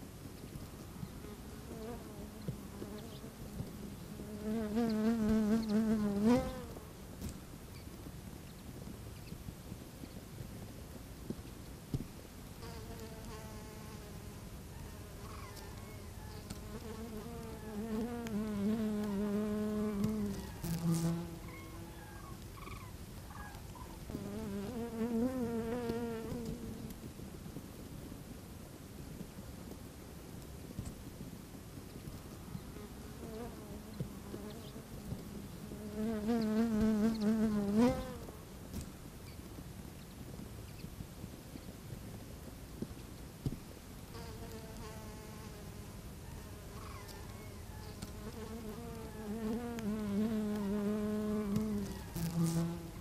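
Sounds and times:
flying insect buzzing: 0:01.3 - 0:06.9, 0:12.6 - 0:22.8, 0:24.1 - 0:26.9, 0:32.8 - 0:38.4, 0:44.1 - 0:53.0.

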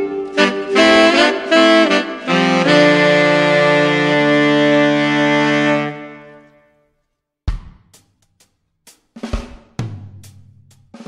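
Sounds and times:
music with reedy wind lead: 0:00.0 - 0:06.7.

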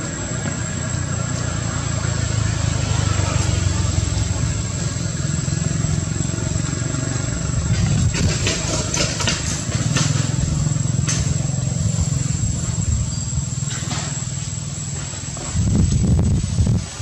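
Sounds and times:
engine humming: 0:00.0 - 0:17.0.

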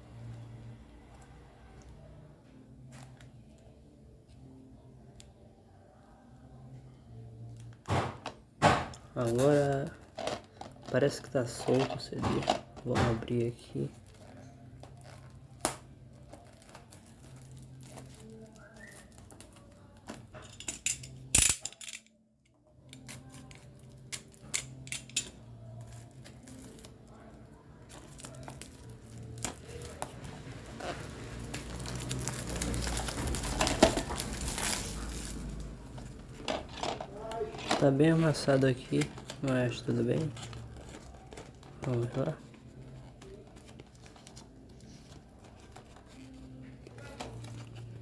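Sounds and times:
plastic wrap crinkling: 0:13.6 - 0:20.1, 0:25.6 - 0:48.0.

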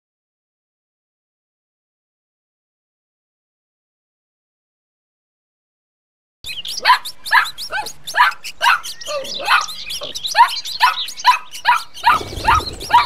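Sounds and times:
dog yelping: 0:06.8 - 0:13.0.

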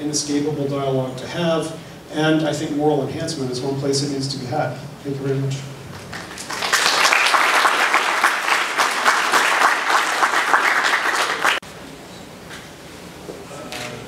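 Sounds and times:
audience applauding: 0:05.9 - 0:11.6.

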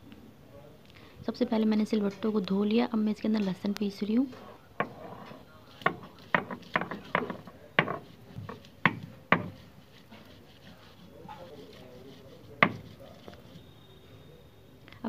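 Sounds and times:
stone-on-stone knocks: 0:04.8 - 0:09.6, 0:12.6 - 0:12.9
stone grinding garlic: 0:04.8 - 0:13.6.

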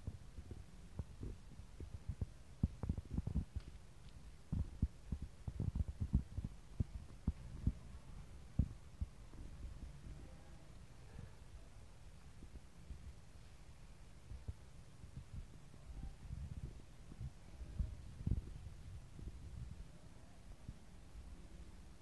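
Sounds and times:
soft low thumps and bumps: 0:00.0 - 0:03.8, 0:04.5 - 0:10.2, 0:16.3 - 0:19.8.

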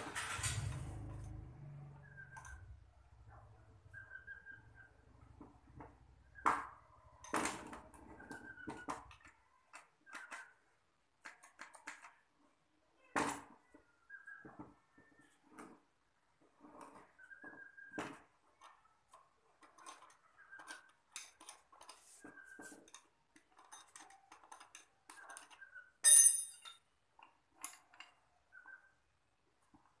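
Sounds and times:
hand tool clinking on metal: 0:23.6 - 0:26.9.

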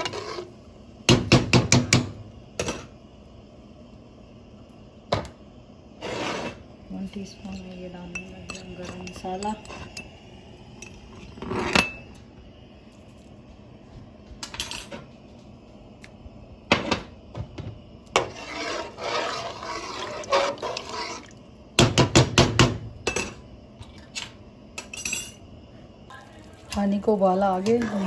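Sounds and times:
metal spoon clinking in pot: 0:07.5 - 0:10.1.

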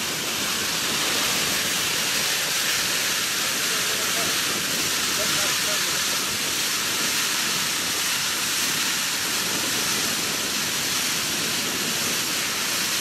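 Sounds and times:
grain pouring into trailer: 0:00.0 - 0:13.0.

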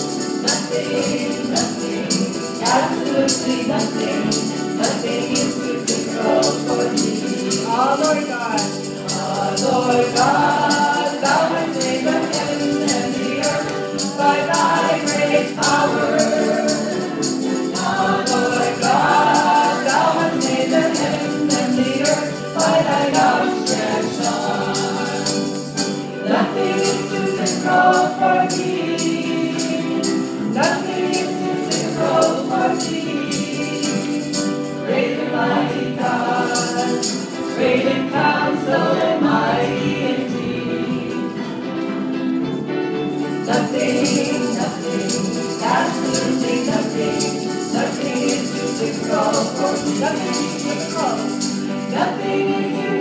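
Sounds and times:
tambourine jingling: 0:00.0 - 0:41.4, 0:42.0 - 0:53.0
group singing gospel song: 0:00.0 - 0:53.0
piano: 0:00.0 - 0:53.0
hands clapping: 0:12.2 - 0:14.8.

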